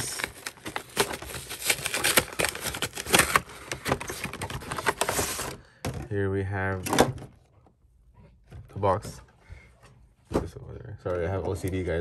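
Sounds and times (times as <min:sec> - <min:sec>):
cardboard packaging rustling: 0:00.0 - 0:05.6.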